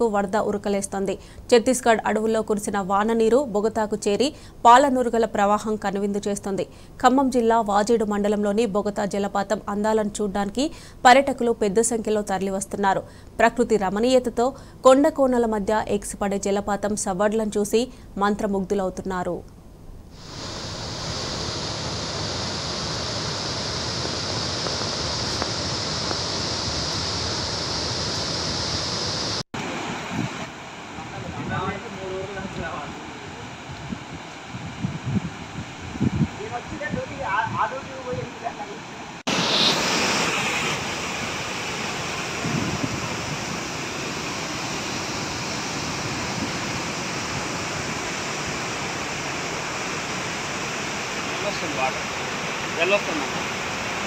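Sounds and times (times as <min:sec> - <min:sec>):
waterfall rushing: 0:20.2 - 0:33.7, 0:36.3 - 0:54.0.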